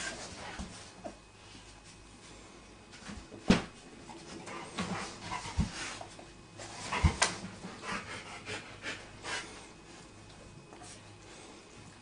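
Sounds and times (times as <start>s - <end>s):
dog panting: 4.3s - 9.7s.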